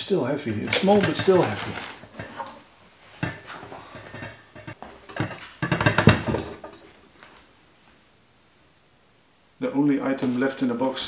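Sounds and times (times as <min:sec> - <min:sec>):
cardboard packaging rustling: 0:00.7 - 0:02.6
metallic knocks and clatters: 0:03.2 - 0:06.9.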